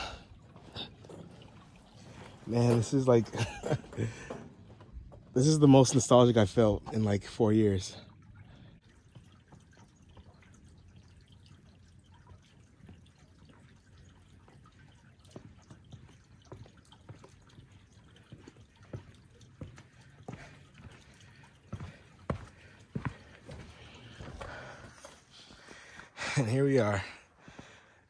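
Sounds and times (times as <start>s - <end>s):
faint forest background: 0.0s - 28.0s
footsteps on dirt trail: 18.3s - 26.3s.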